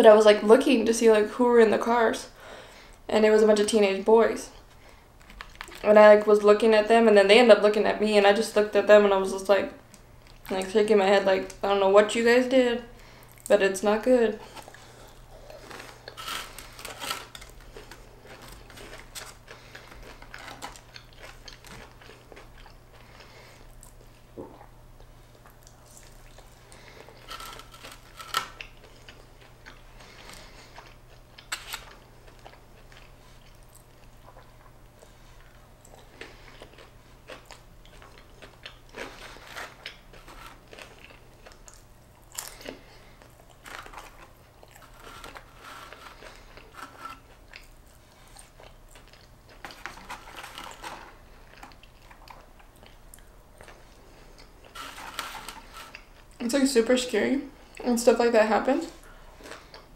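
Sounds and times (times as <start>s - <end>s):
chewing and crunching food: 4.5s - 6.3s, 9.8s - 10.7s, 14.3s - 56.4s, 58.8s - 59.9s.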